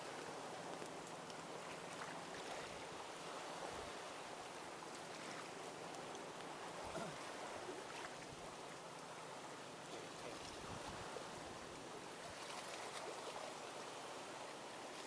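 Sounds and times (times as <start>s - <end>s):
waves lapping against boat hull: 0.0s - 9.1s.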